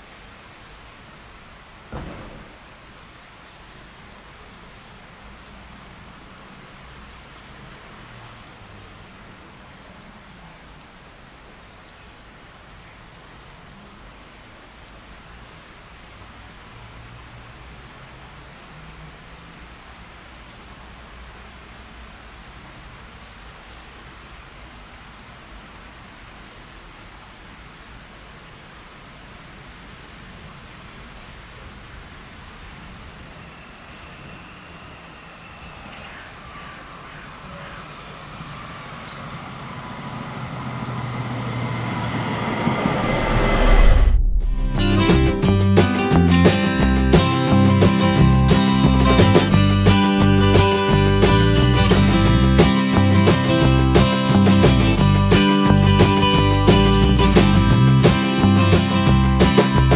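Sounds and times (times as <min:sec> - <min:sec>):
rain falling: 0:00.0 - 0:59.9.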